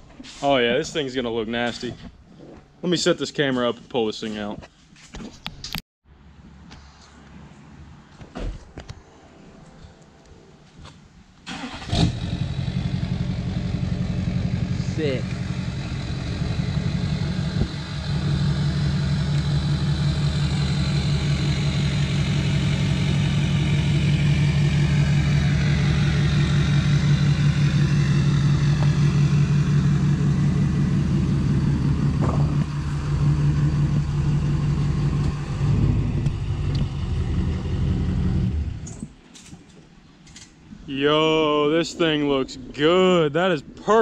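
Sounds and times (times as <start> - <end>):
diesel truck engine rumbling: 11.5 - 38.9.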